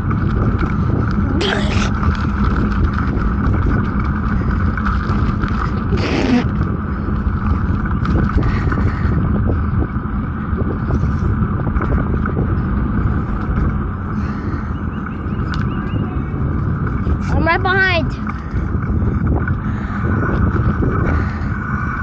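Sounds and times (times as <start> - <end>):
bike ride rumble and rushing: 0.0 - 22.0.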